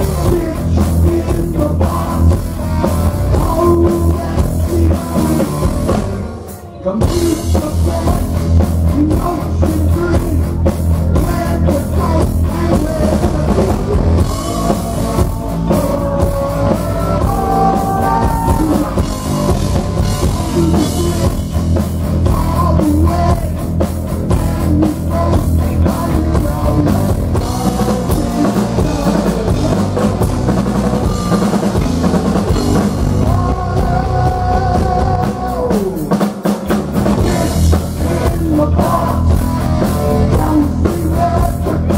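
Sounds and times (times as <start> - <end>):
person singing: 0.0 - 30.4, 31.0 - 41.9
drum kit: 0.0 - 41.9
electric guitar: 0.0 - 41.9
heavy metal band playing: 0.0 - 41.9.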